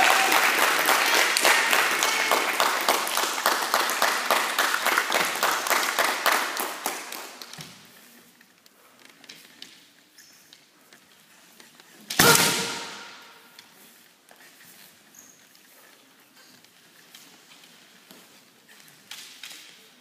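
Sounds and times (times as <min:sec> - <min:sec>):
spectators clapping: 0:00.0 - 0:07.6.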